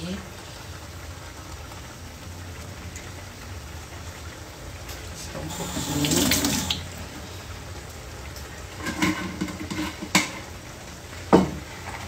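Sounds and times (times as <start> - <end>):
pots and utensils clattering: 8.7 - 10.6, 11.3 - 12.0.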